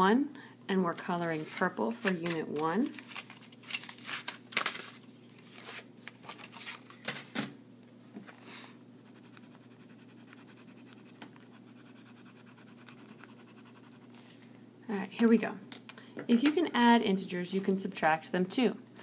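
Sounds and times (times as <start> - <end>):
page rustling: 1.4 - 7.2
pencil scratching on paper: 9.0 - 14.2.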